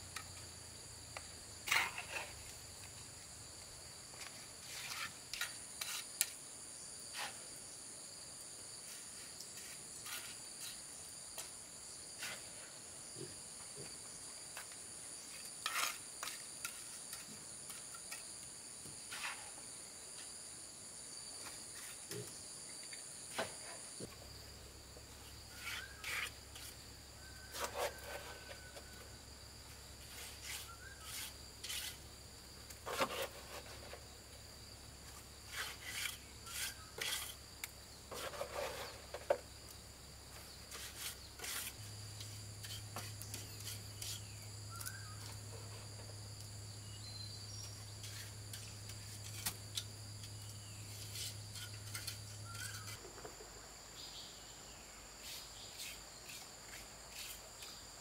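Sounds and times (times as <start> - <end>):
insects chirring: 0.0 - 58.0
trowel scraping and tapping stones: 1.1 - 3.0, 4.1 - 6.5, 8.9 - 12.6, 13.8 - 20.4, 25.5 - 29.0, 30.0 - 32.0, 32.6 - 34.1, 35.1 - 39.8, 40.7 - 45.4, 47.6 - 53.4.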